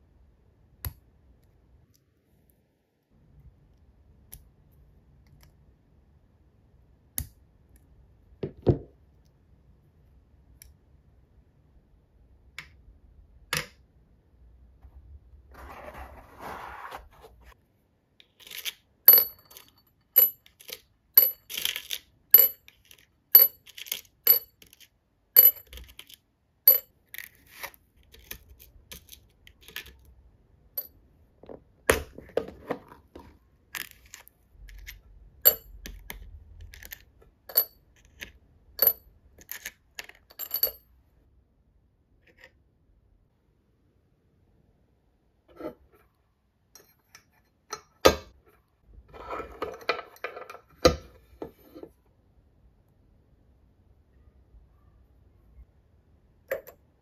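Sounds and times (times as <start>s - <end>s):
metal screws clinking: 18.4s - 27.3s, 33.8s - 35.7s.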